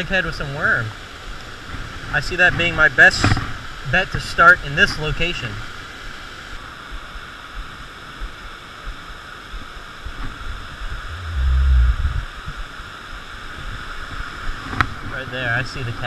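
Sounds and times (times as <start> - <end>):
low rumbling thump: 11.0 - 12.3.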